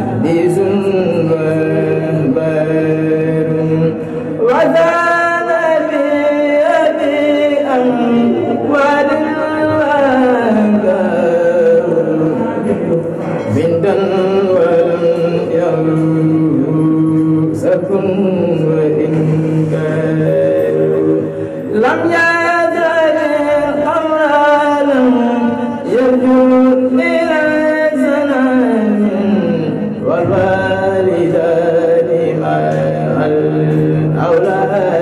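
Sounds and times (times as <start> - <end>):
man chanting into a microphone: 0.0 - 35.0.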